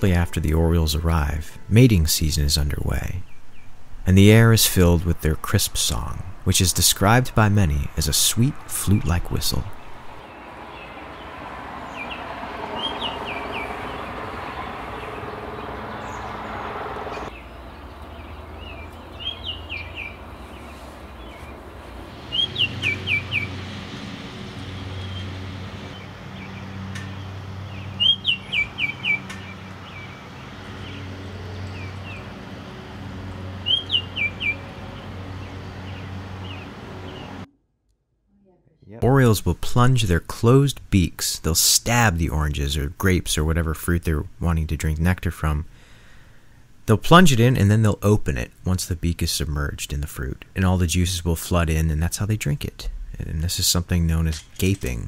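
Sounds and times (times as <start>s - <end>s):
bird singing whistled notes: 12.8s - 14.1s, 17.2s - 21.6s, 22.3s - 23.6s, 27.2s - 30.2s, 33.6s - 34.7s.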